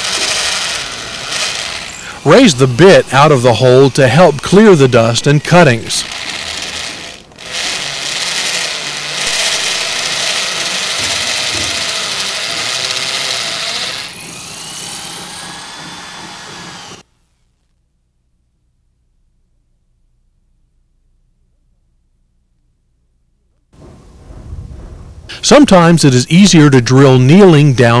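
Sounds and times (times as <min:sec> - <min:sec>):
hammer drill boring into concrete: 0:00.0 - 0:17.1.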